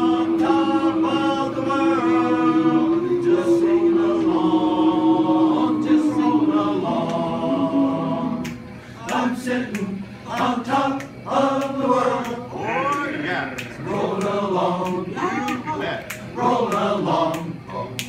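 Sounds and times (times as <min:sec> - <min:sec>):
men's chorus singing in harmony: 0:00.0 - 0:15.4, 0:16.2 - 0:18.0.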